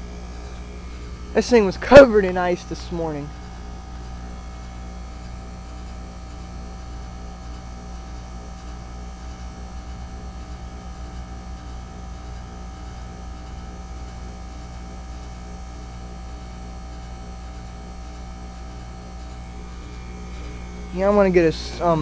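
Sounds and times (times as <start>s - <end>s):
compressor hum: 0.0s - 22.0s
steady tones: 19.1s - 22.0s.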